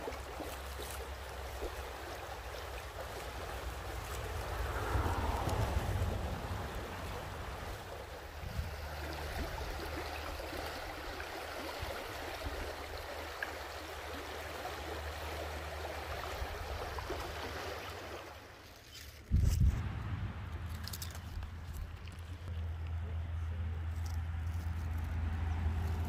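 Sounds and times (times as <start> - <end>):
stream running over stones: 0.0 - 23.2
loud low rumble: 19.6 - 21.6.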